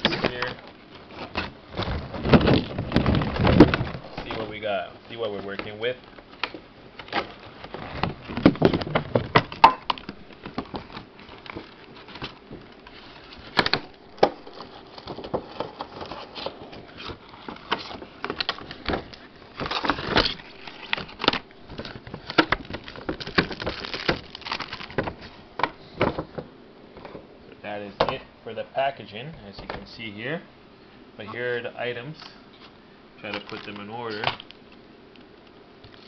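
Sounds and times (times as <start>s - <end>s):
plastic packaging crinkling: 0.0s - 25.4s, 33.2s - 34.8s.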